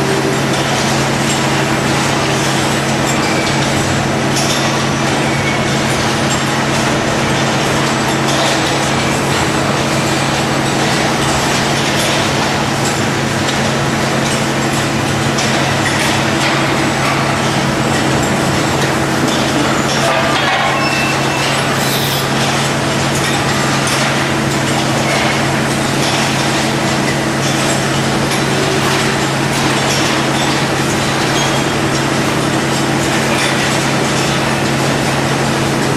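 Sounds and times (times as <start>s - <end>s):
machinery low hum: 0.0s - 24.4s.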